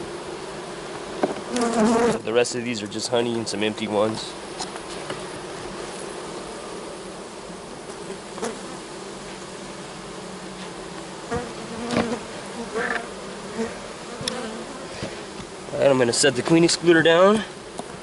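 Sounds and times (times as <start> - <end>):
bees buzzing: 0.0 - 18.0.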